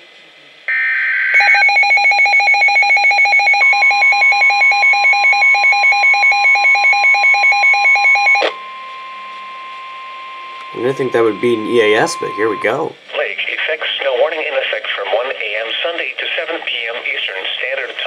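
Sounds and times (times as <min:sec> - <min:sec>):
steady warning tone: 0:00.7 - 0:13.0
fast loud pulsing alarm beep: 0:00.8 - 0:13.0.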